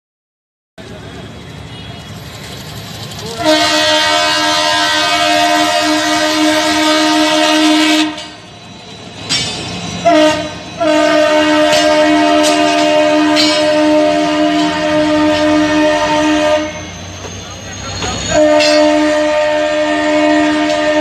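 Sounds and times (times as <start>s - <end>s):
locomotive horn blasts: 3.4s - 8.4s, 10.0s - 16.9s, 18.3s - 21.0s.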